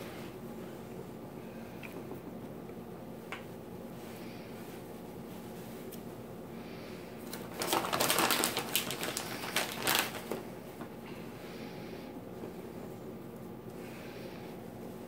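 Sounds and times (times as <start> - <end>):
plastic packaging crinkling: 7.2 - 11.0.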